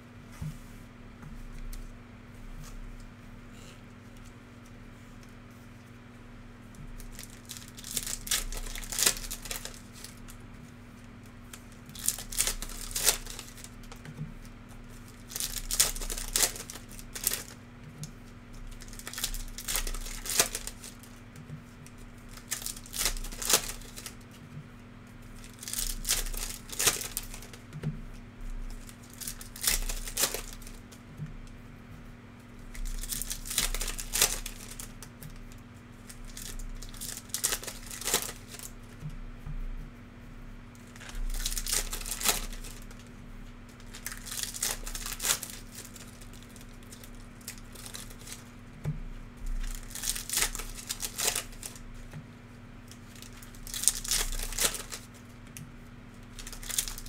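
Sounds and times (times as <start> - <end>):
card pack wrappers tearing and crinkling: 7.0 - 10.3, 11.5 - 14.2, 15.0 - 17.6, 18.6 - 21.2, 22.3 - 24.4, 25.4 - 27.7, 28.7 - 31.0, 32.7 - 38.8, 40.8 - 43.1, 43.7 - 48.5, 49.6 - 52.0, 52.9 - 55.2, 56.3 - 57.0.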